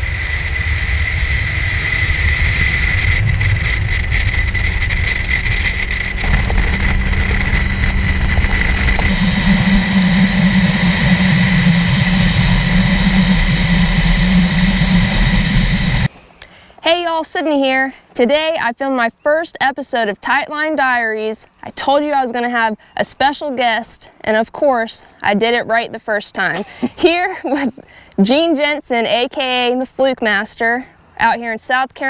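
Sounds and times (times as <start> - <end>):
outboard motor running: 0.0 - 16.1
rushing wind: 0.0 - 16.1
water rushing: 0.0 - 16.1.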